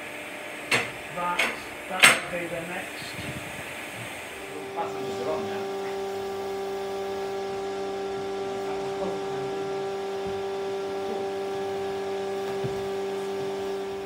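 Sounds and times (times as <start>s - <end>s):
steady mechanical hum: 0.0s - 14.0s.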